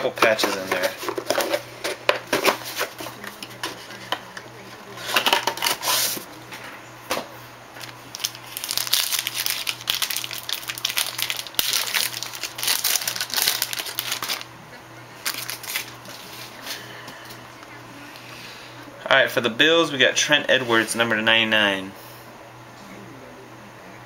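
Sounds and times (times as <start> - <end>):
wrapper crinkling as torn open: 7.8 - 14.5, 15.2 - 16.5.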